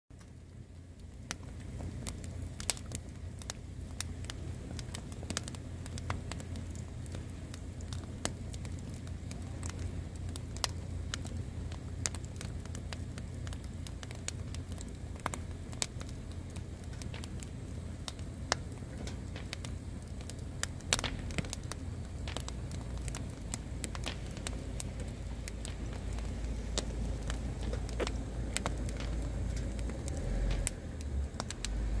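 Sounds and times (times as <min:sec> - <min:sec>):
wood fire crackling: 0:00.1 - 0:32.0
low rumble: 0:14.0 - 0:32.0.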